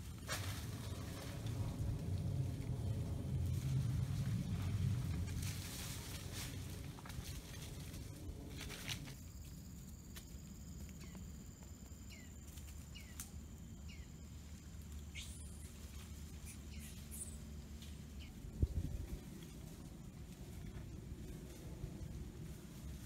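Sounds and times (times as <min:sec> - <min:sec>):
high insect whine: 0:00.0 - 0:23.0
low rumble: 0:00.0 - 0:23.0.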